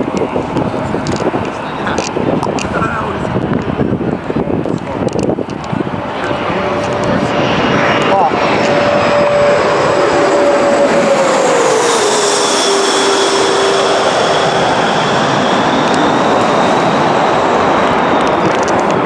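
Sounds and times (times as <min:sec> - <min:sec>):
whining tone dropping in pitch: 0:05.4 - 0:19.0
passing vehicle roar: 0:05.6 - 0:19.0.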